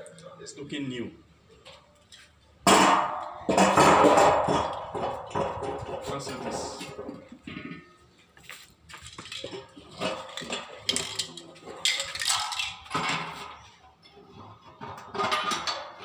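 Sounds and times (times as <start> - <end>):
metal clanks and scrapes: 1.5 - 8.1, 9.0 - 16.0.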